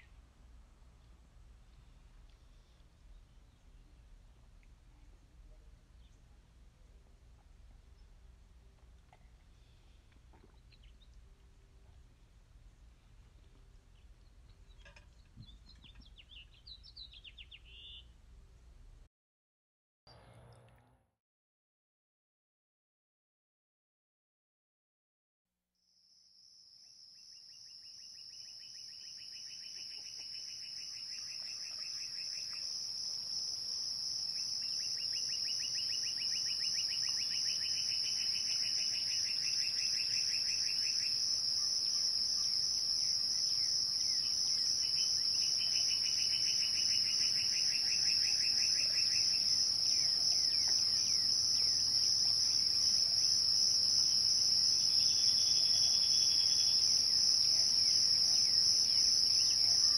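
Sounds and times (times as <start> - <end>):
insects high-pitched whine: 26.0 - 59.9
insects rapid pulsing trill: 27.8 - 59.9.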